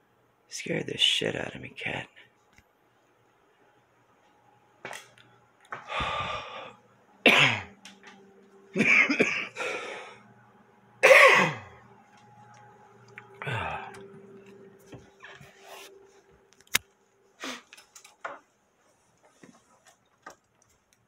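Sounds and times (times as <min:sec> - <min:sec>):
man clearing throat: 0:07.3 - 0:07.8, 0:08.8 - 0:09.6, 0:11.0 - 0:11.7
man coughing: 0:07.3 - 0:07.8, 0:08.8 - 0:09.8, 0:11.0 - 0:11.7.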